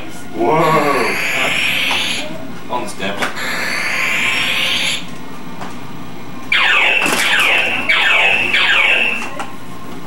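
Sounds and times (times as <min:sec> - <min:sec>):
electronic toy buzzing tone: 0:00.6 - 0:02.3, 0:03.4 - 0:05.1, 0:06.5 - 0:09.3.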